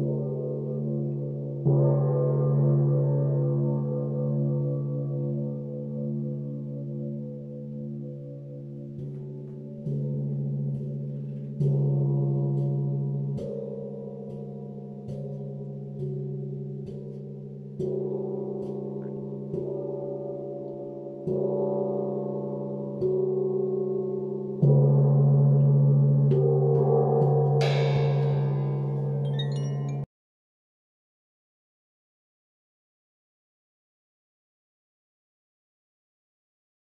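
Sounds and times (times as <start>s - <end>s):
gong struck softly: 27.6s - 29.1s
high chime tinkles: 27.7s - 30.1s.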